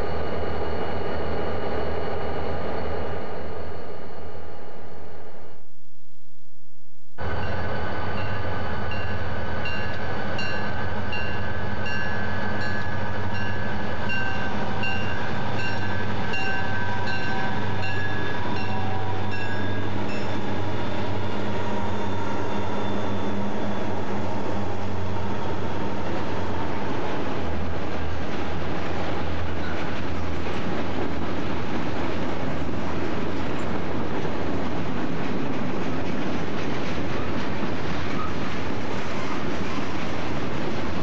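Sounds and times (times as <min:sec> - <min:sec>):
diesel locomotive engines droning: 0:00.0 - 0:05.4, 0:07.2 - 0:41.0
locomotive bell ringing: 0:07.3 - 0:23.5.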